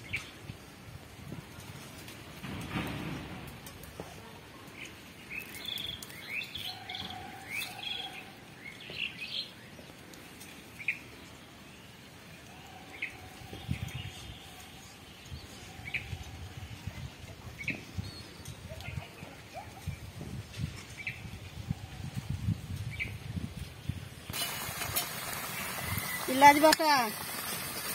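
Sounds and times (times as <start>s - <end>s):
small birds chirping: 4.6s - 16.5s.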